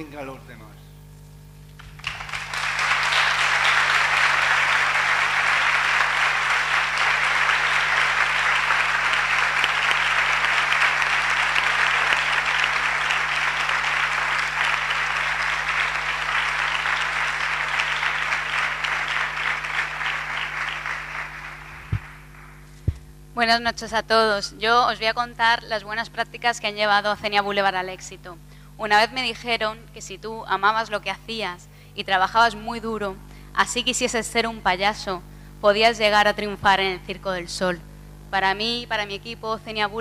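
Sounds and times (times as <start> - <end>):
audience applauding: 1.8 - 22.8.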